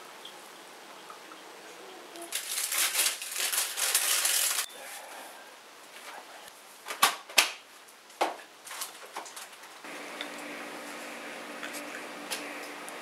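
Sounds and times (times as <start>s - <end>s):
low steady hum: 9.9s - 13.0s.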